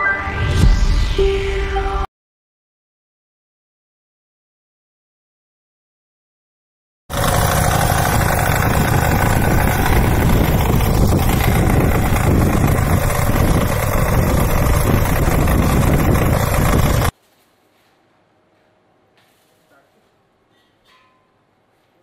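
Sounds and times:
tiller engine running: 7.1s - 17.1s.

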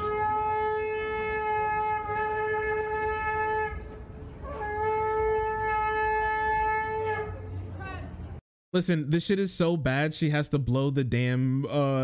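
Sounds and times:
ram's horn blasts: 0.0s - 7.5s.

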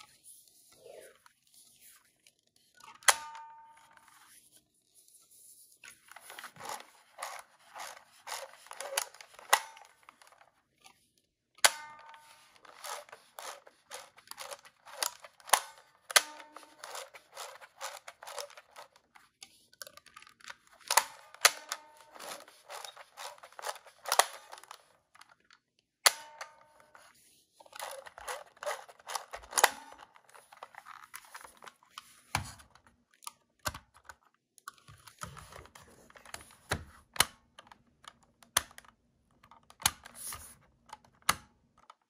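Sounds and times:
film advance ratcheting clicks: 6.6s - 10.4s, 12.5s - 19.0s, 20.4s - 24.8s.

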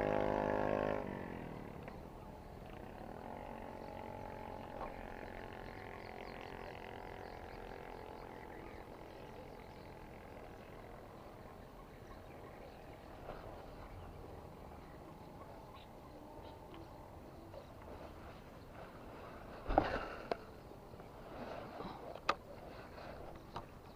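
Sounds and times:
frogs calling: 1.2s - 21.1s.

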